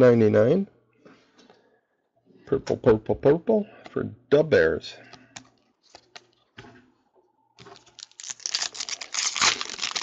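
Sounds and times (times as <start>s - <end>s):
foil pack crinkling and tearing: 7.6s - 10.0s.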